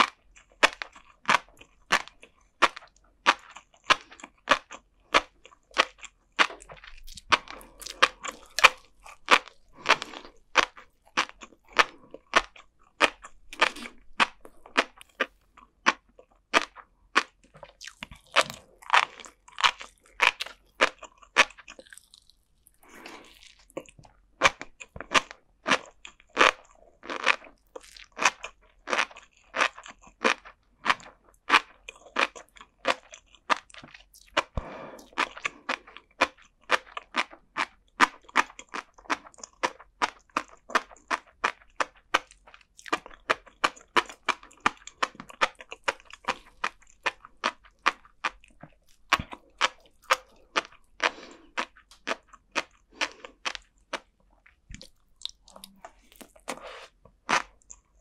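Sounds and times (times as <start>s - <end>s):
chewing fish roe popping: 0.0s - 58.0s.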